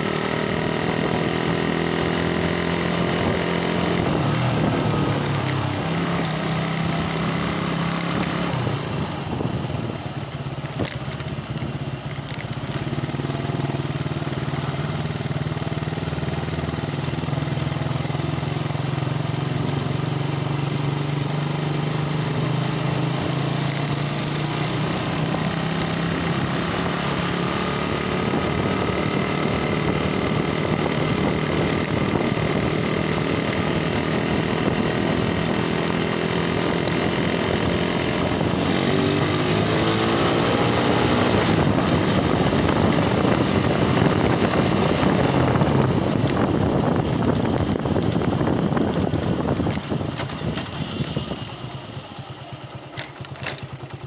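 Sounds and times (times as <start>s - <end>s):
motorcycle engine running: 0.0s - 54.0s
wind rush over microphone: 37.2s - 51.5s.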